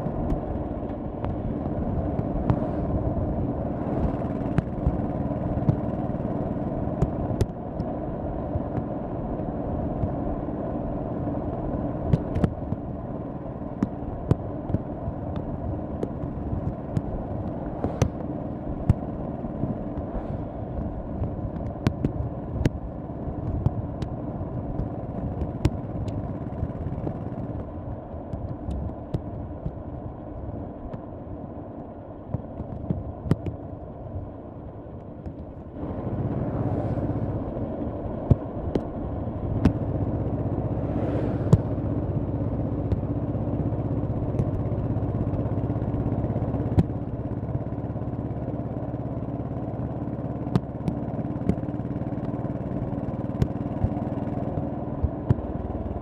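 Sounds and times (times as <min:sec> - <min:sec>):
motorcycle engine running: 0:00.0 - 0:56.0
whooshes of noise: 0:02.3 - 0:04.2, 0:36.0 - 0:37.6, 0:40.6 - 0:42.3.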